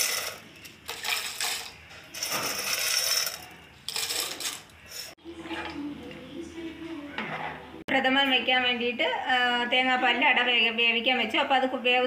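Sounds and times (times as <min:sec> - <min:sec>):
dried pieces rattling into pot: 0:00.0 - 0:04.6.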